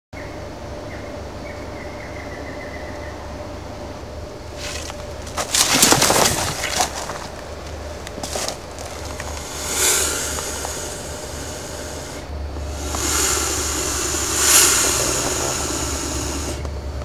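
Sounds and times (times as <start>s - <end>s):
rustling in dry grass and leaves: 4.5s - 16.7s.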